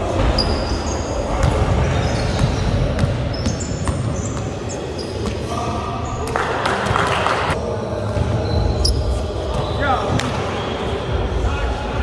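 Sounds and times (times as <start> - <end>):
sneakers squeaking: 0.0 - 7.2, 7.8 - 11.2
basketballs bouncing on hall floor: 0.2 - 5.5.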